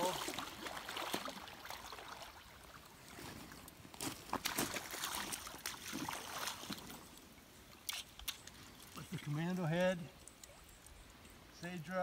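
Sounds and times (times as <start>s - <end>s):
fish splashing in water: 4.4s - 6.9s.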